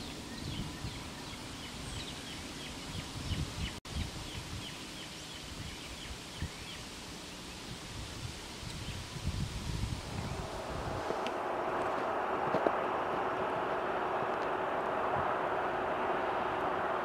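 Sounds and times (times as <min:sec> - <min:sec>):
wind rumble on microphone: 0:00.0 - 0:02.2, 0:02.8 - 0:06.6, 0:07.7 - 0:17.0
birds chirping: 0:00.0 - 0:07.7.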